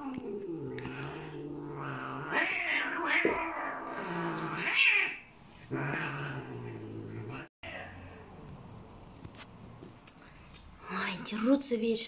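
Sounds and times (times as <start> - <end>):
cat hissing and yowling: 0.0 - 8.4
cat growling: 0.0 - 9.8.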